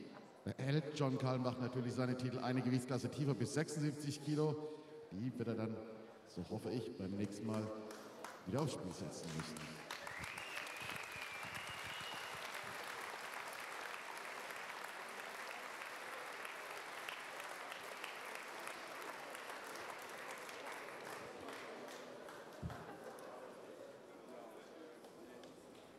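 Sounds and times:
audience applauding: 7.9 - 23.6
thin high whistle: 10.0 - 12.5.

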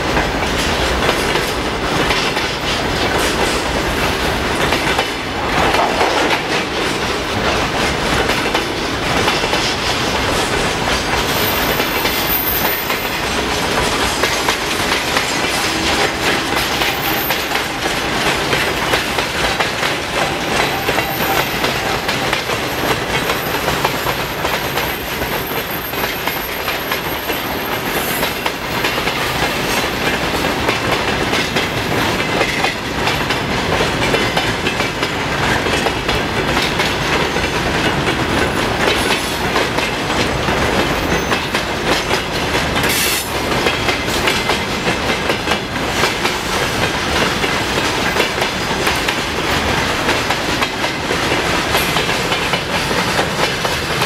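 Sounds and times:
train wheels clattering over rail joints: 0.0 - 54.0.

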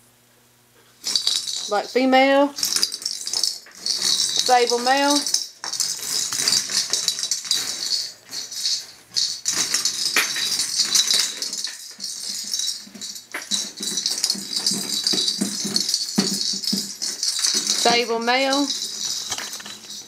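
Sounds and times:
rattling and clicking: 1.0 - 2.0, 2.6 - 20.0.

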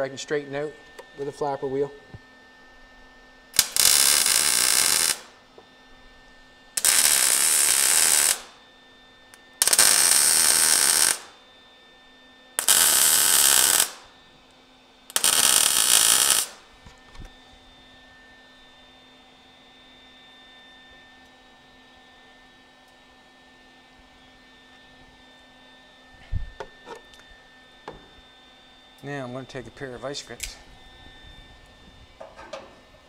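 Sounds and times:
welder arc noise: 3.5 - 11.4, 12.6 - 14.2, 15.1 - 17.3.

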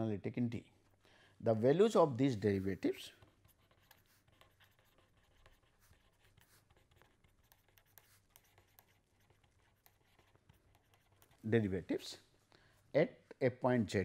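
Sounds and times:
pen scratching on paper: 2.3 - 11.8.

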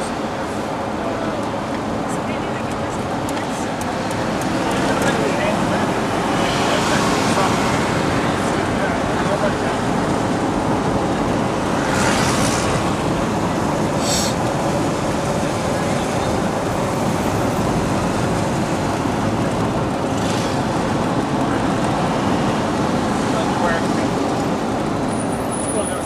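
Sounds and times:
road and engine noise inside vehicle: 0.0 - 26.0
brief hissing: 14.0 - 14.4.

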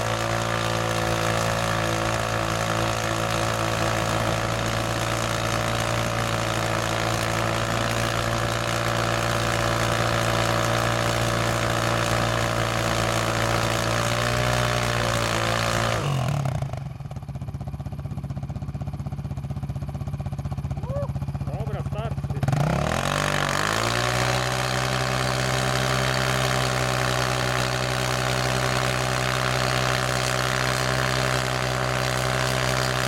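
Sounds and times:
quad engine revving: 0.0 - 17.4, 20.6 - 33.0.

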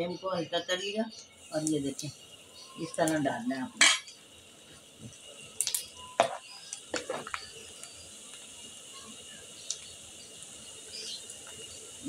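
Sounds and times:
food deep-frying in hot oil: 0.0 - 12.0.

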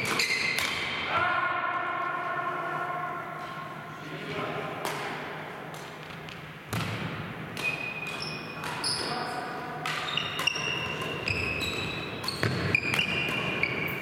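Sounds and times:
shoes squeaking on court floor: 0.0 - 0.8, 7.6 - 14.0
racket hitting shuttlecock: 0.0 - 1.0, 4.8 - 9.0, 9.8 - 13.7.

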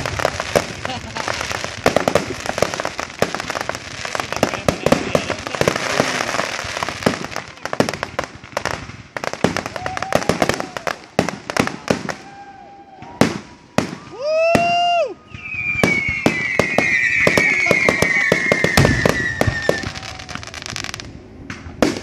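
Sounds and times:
fireworks bursting: 0.0 - 22.0.

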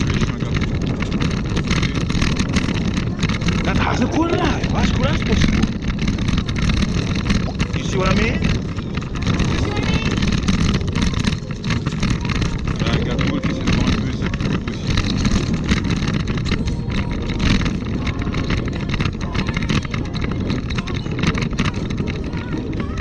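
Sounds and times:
road noise: 0.0 - 23.0
small rattles and knocks: 0.0 - 23.0
wind noise on microphone: 0.0 - 23.0.

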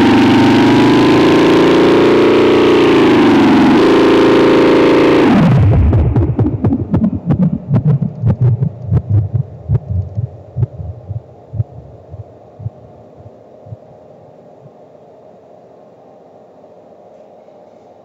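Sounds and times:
electronic noise music pulses: 0.0 - 14.8
steady low drone: 2.9 - 15.0.

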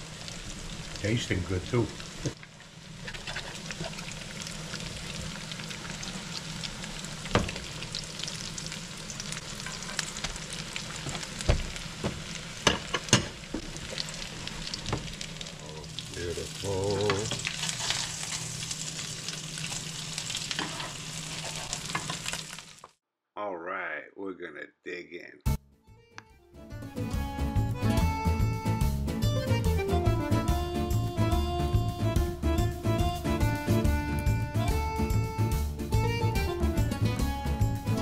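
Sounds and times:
food sizzling in oil: 0.0 - 23.0
metal spatula scraping pan: 17.6 - 18.5.

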